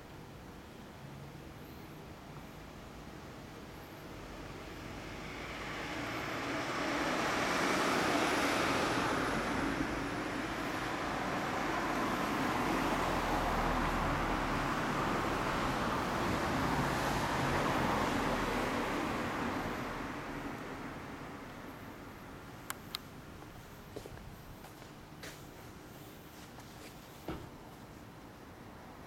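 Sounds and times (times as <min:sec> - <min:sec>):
passing vehicle traffic rumble: 0:04.0 - 0:24.6.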